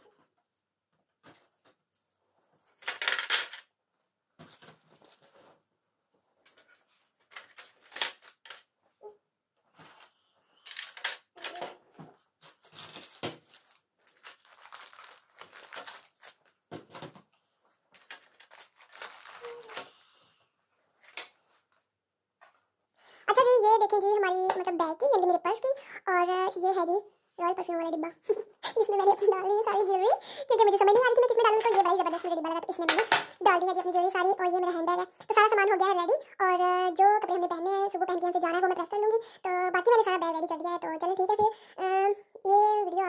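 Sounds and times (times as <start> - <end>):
paper crinkling: 6.4 - 8.6, 12.4 - 17.2, 17.8 - 20.2.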